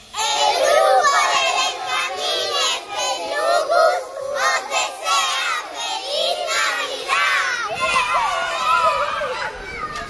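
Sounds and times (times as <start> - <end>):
young children singing: 0.0 - 8.1.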